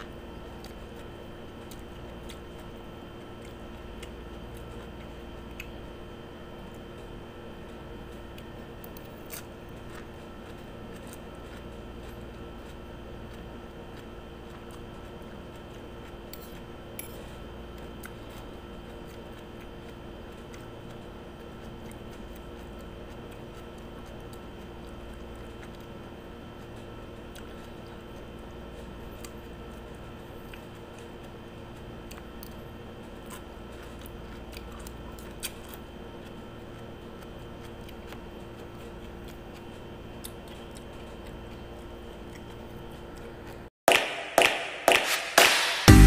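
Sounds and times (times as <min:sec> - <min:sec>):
steady background hum: 0:00.0 - 0:46.0.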